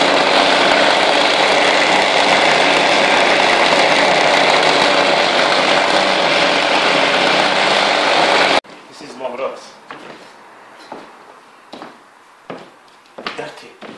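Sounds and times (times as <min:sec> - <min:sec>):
rug-beating machine running: 0:00.0 - 0:08.6.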